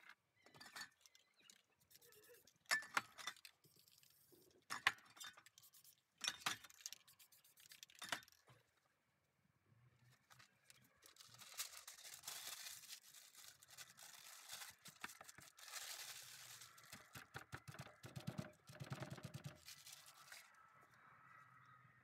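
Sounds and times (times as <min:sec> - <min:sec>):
paper crumpling: 0:10.3 - 0:17.3, 0:19.1 - 0:20.6.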